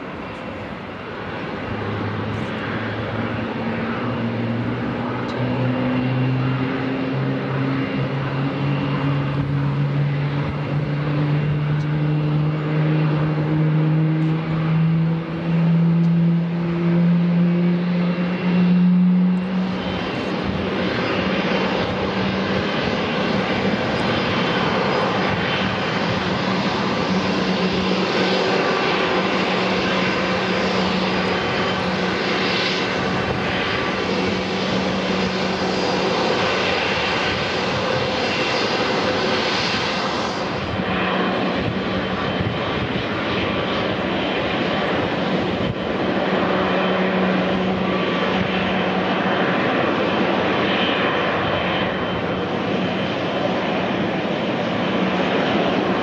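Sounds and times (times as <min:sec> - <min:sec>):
jet engines taxiing: 0:00.0 - 0:56.0.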